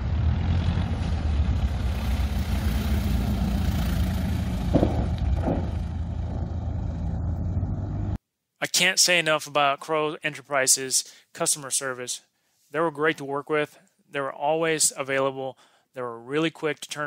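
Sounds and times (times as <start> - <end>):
light aircraft engine and propeller: 0.0 - 8.2.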